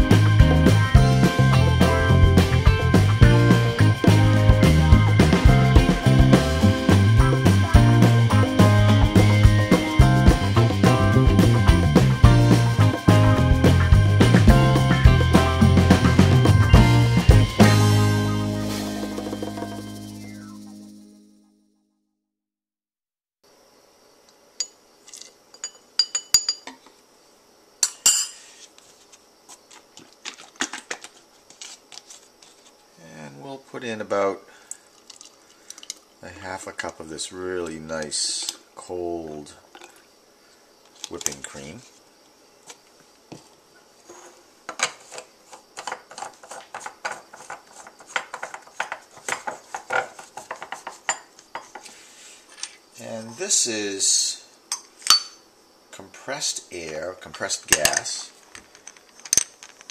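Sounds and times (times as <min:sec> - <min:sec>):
metal spoon clinking on bowl: 0:25.5 - 0:26.8
clicks and scrapes of hard parts: 0:44.1 - 0:52.8.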